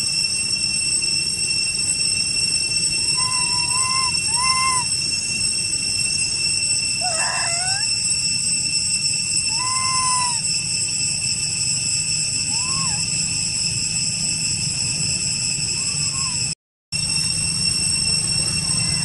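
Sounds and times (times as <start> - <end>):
high-pitched insect drone: 0.0 - 19.0
young monkeys coo calls: 3.1 - 5.1, 6.5 - 8.1, 9.3 - 10.5, 12.4 - 13.3, 15.6 - 16.5.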